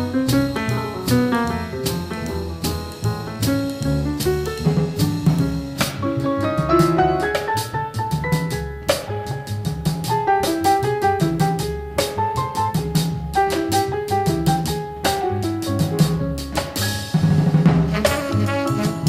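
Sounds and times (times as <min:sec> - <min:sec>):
drum kit beat: 0:00.0 - 0:19.0.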